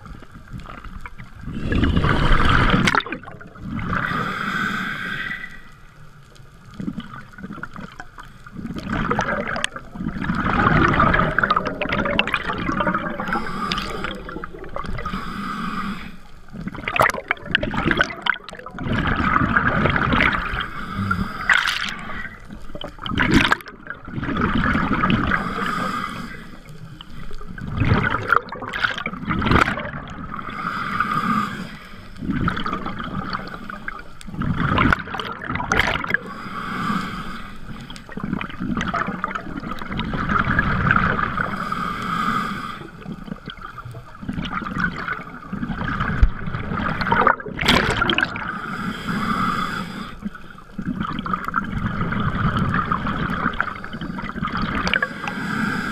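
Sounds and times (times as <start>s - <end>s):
bubbling gurgling exhale: 0.0s - 5.8s, 6.6s - 55.9s
hissing regulator inhale: 3.9s - 5.9s, 13.2s - 16.4s, 20.5s - 22.4s, 25.3s - 27.4s, 30.4s - 32.2s, 36.2s - 38.1s, 41.4s - 43.2s, 48.4s - 50.6s, 54.9s - 55.9s.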